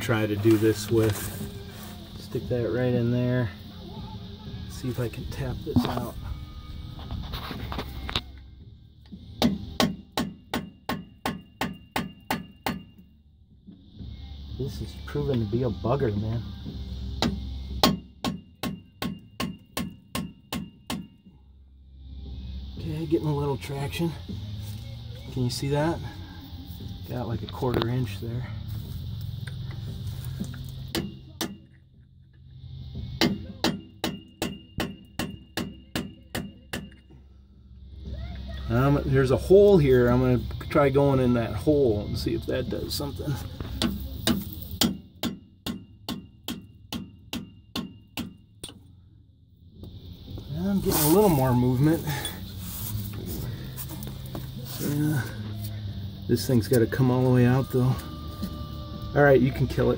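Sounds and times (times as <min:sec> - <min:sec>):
hammer striking metal bar: 0:09.4 - 0:12.9, 0:17.2 - 0:21.2, 0:30.9 - 0:31.7, 0:33.2 - 0:37.0, 0:43.8 - 0:48.8.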